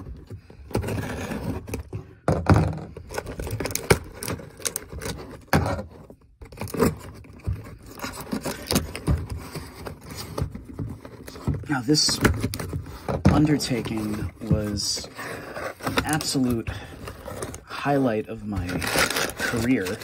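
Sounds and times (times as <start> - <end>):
cardboard rustles and knocks: 5.0 - 17.6.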